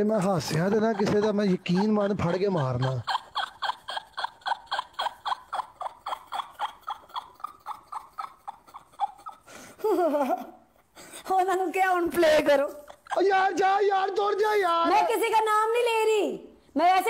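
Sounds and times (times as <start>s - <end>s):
person speaking: 0.0s - 3.7s
person laughing: 0.2s - 10.6s.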